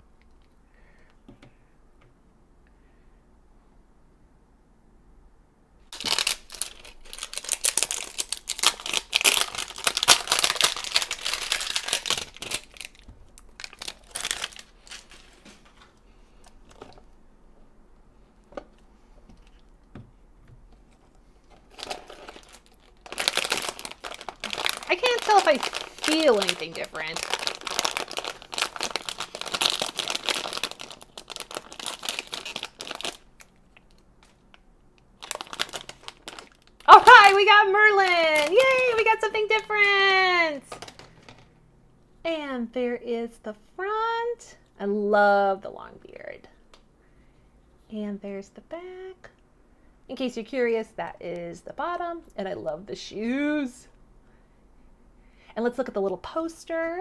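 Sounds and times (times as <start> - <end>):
plastic wrapper crinkling: 5.9 - 16.0, 21.4 - 41.5.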